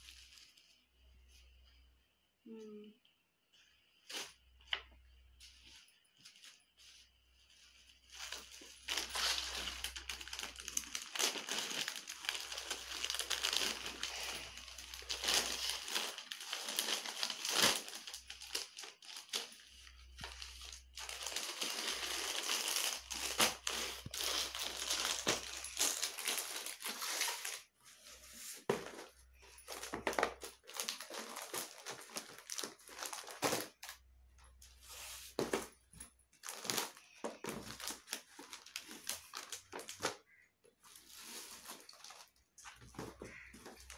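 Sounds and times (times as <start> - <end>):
plastic packaging crinkling: 7.6 - 27.8, 28.6 - 34.1, 36.4 - 43.9.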